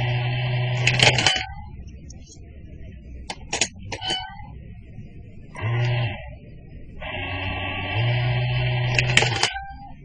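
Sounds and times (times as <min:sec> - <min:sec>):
toy coin bank clicks and taps: 0:00.8 - 0:01.5, 0:03.3 - 0:04.2, 0:08.9 - 0:09.6.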